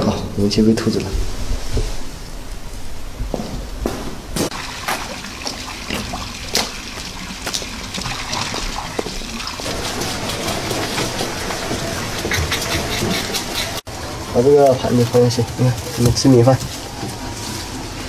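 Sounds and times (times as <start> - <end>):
rainwater dripping and trickling: 4.5 - 18.0.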